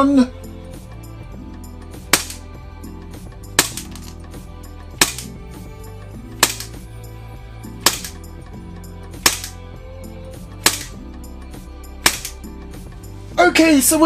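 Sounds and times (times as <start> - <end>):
background music: 0.0 - 14.0
airsoft pistol shots: 2.1 - 2.4, 3.6 - 4.1, 5.0 - 5.4, 6.4 - 6.8, 7.8 - 8.2, 9.2 - 9.6, 10.6 - 11.0, 12.0 - 12.4.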